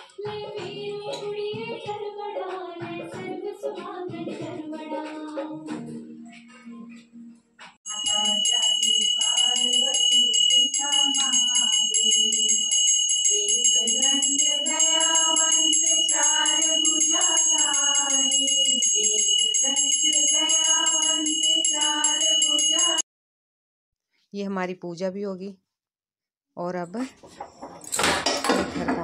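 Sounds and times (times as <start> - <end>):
person singing: 0.0 - 7.0, 7.9 - 23.0
fast jingling bell beat: 7.9 - 23.0.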